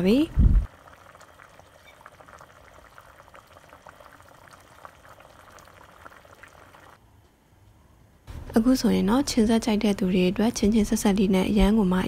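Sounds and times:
small bubbles popping in pot: 0.0s - 7.0s.

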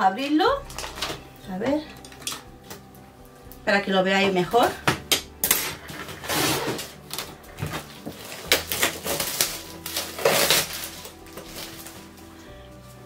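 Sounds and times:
soft background music: 0.0s - 13.0s
packaging rustling and crinkling: 0.6s - 3.0s, 5.7s - 13.0s.

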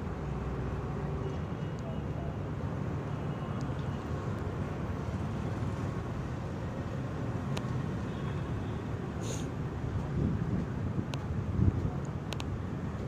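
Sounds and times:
brief high hiss: 9.2s - 9.5s
faint sharp ticks: 12.0s - 12.6s.

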